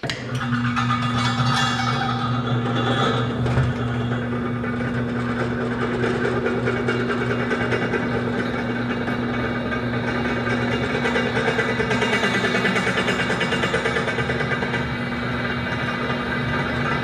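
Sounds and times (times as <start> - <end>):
drill press motor hum: 1.8 - 17.0.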